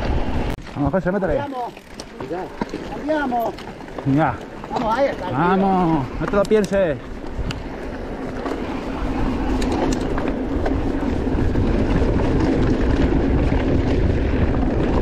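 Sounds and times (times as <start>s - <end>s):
bike tyres rumbling on rocky trail: 0.0s - 15.0s
sharp clicks: 6.3s - 6.8s.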